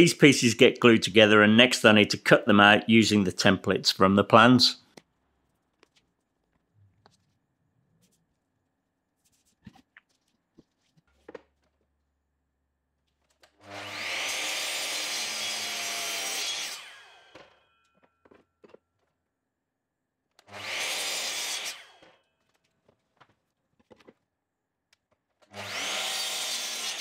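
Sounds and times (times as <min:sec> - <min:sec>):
mitre saw cutting wood: 0:13.6 - 0:17.6, 0:20.4 - 0:22.2, 0:25.4 - 0:27.0.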